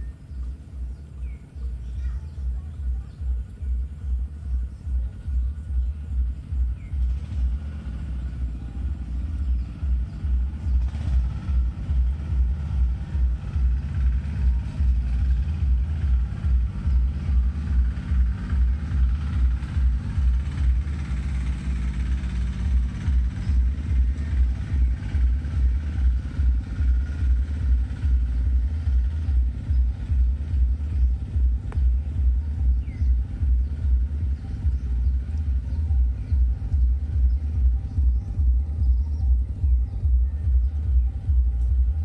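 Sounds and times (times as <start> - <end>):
electronic music with heavy bass beat: 22.6 - 42.0.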